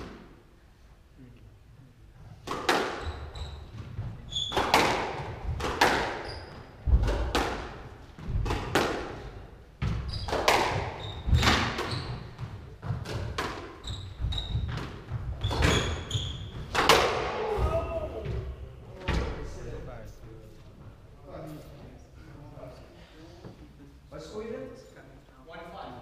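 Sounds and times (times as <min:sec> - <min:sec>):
squash ball cracks: 0:02.4 - 0:03.0, 0:04.5 - 0:06.2, 0:06.9 - 0:09.2, 0:09.9 - 0:11.9, 0:16.7 - 0:17.4
shoes squeaking on wooden floor: 0:03.0 - 0:07.0, 0:09.8 - 0:16.8.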